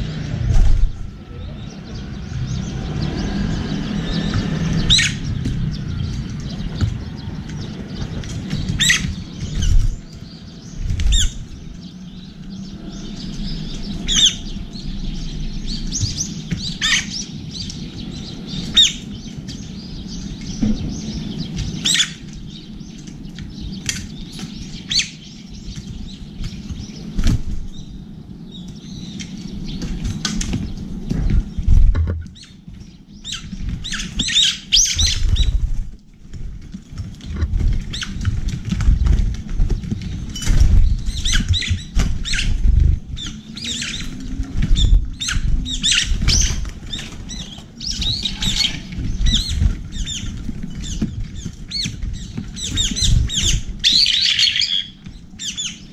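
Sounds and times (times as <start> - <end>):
birds pecking on metal trays: 0.0 - 55.9
wings flapping: 2.8 - 11.9, 12.8 - 28.0, 28.6 - 55.9.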